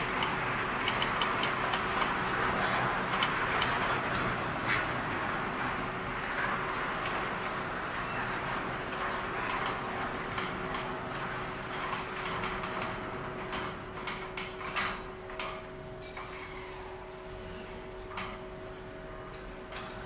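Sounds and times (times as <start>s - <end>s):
sharp clicks and knocks: 0.0s - 7.6s
machine humming and hissing: 0.0s - 20.0s.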